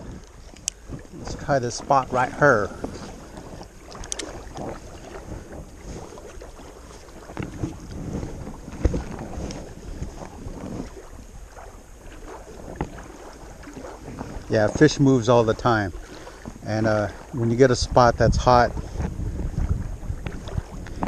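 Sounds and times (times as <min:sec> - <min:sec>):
lapping water: 0:00.0 - 0:21.0
wind buffeting microphone: 0:00.0 - 0:21.0
fishing reel click: 0:03.9 - 0:04.4.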